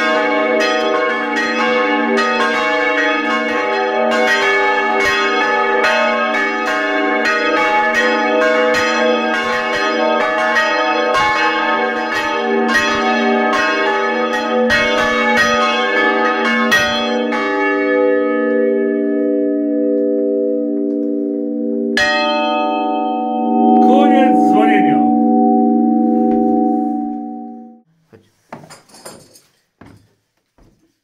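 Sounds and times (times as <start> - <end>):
church bell ringing: 0.0 - 27.9.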